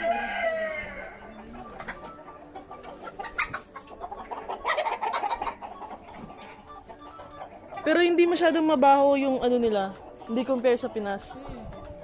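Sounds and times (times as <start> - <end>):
rooster crowing: 0.0 - 1.2
hens and roosters clucking: 0.0 - 12.0.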